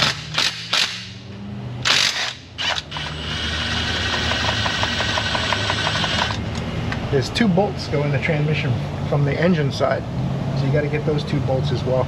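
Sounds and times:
power ratchet hissing and clicking: 1.8s - 6.4s.

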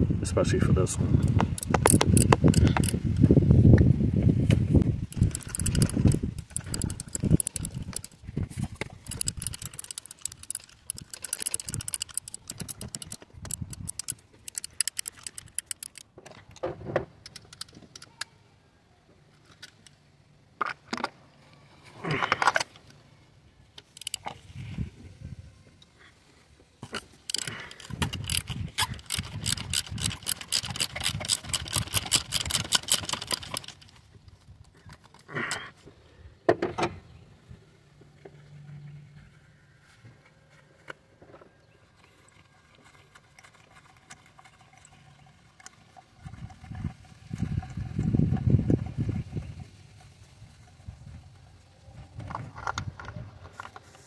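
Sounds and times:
ratchet wrench clicking: 1.3s - 3.0s, 5.0s - 8.2s, 8.8s - 16.1s, 23.9s - 24.3s, 27.3s - 33.9s.

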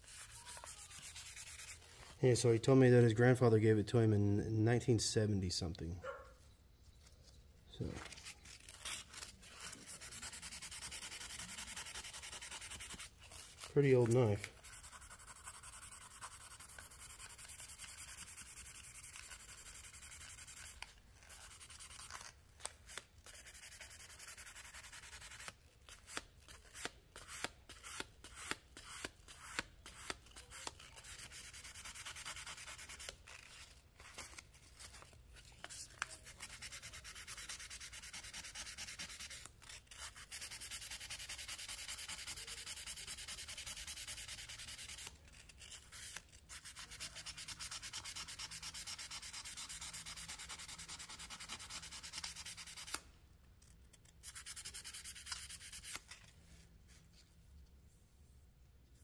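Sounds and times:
sandpaper rubbing on metal knife: 0.0s - 1.9s, 8.2s - 22.3s, 22.9s - 35.0s, 36.2s - 53.0s, 54.2s - 56.1s.

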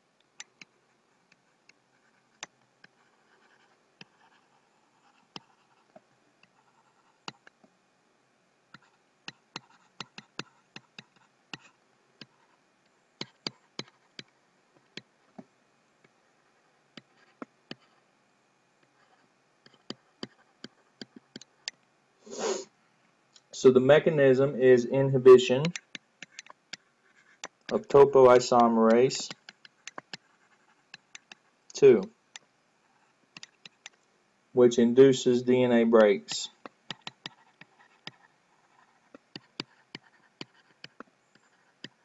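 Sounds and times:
stylus scratching on tablet: 0.4s - 7.6s, 8.7s - 12.6s, 13.2s - 15.5s, 16.4s - 18.1s, 18.8s - 22.6s, 25.1s - 34.0s, 35.6s - 42.0s
stylus taps and clicks: 8.7s - 12.3s, 19.7s - 21.8s, 27.4s - 30.3s, 30.9s - 31.4s, 33.3s - 34.0s, 36.0s - 38.2s, 39.1s - 41.1s.

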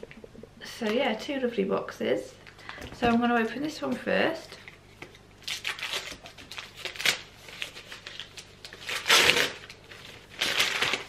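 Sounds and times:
wrapping paper tearing and crumpling: 5.4s - 11.0s.

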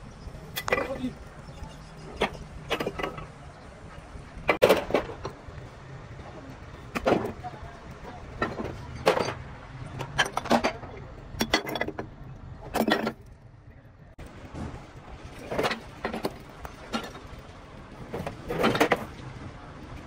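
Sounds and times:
metallic clanks and knocks: 0.5s - 3.4s, 4.5s - 5.4s, 6.9s - 13.4s, 14.2s - 19.2s.

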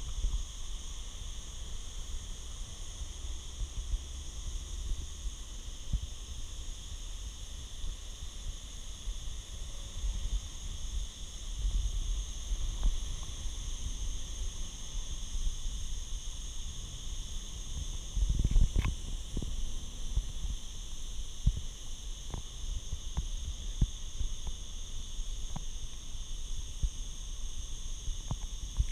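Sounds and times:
high-pitched hiss: 0.0s - 28.9s
camera handling rumble and knocks: 18.3s - 19.5s.

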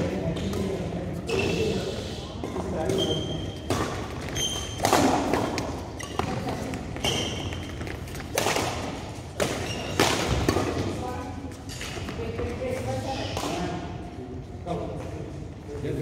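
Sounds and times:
shoe squeaks: 1.3s - 1.9s, 2.9s - 4.8s, 5.9s - 7.9s, 9.6s - 10.0s
rackets hitting shuttlecock: 2.5s - 11.0s.

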